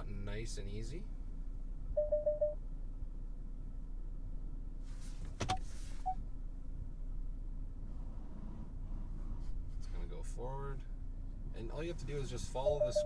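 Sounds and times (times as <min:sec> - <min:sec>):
car engine idling hum: 0:00.0 - 0:13.0
shuffling in car cabin: 0:04.8 - 0:06.2, 0:07.9 - 0:10.2.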